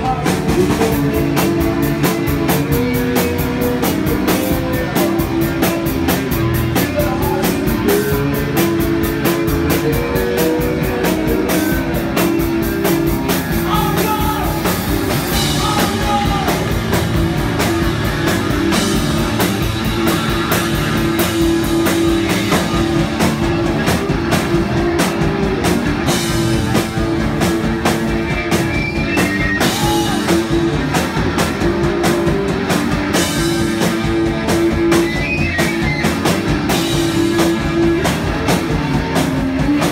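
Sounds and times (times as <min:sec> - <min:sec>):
person singing: 0:00.0 - 0:12.1, 0:13.5 - 0:16.9, 0:29.6 - 0:30.7
rock band playing: 0:00.0 - 0:39.9.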